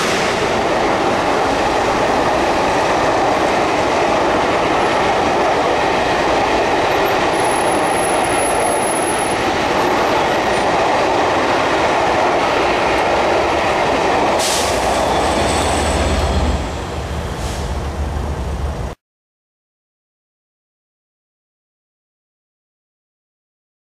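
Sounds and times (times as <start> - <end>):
train wheels rushing on rails: 0.0 - 19.0.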